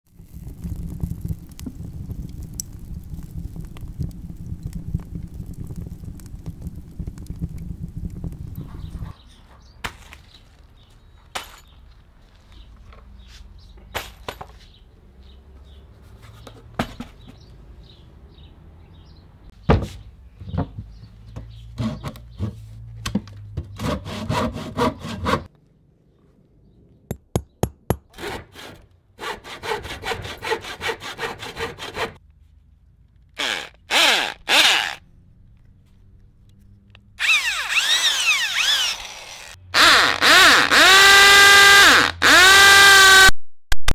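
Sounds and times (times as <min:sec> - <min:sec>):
knocks of handling wood and tools: 0:09.8 - 0:14.8, 0:16.0 - 0:17.5, 0:19.5 - 0:24.0
hand saw cutting wood: 0:21.7 - 0:22.6, 0:23.6 - 0:25.5, 0:28.1 - 0:32.2, 0:33.4 - 0:35.0, 0:37.2 - 0:43.2
power drill boring into wood: 0:33.4 - 0:35.0, 0:37.2 - 0:43.3.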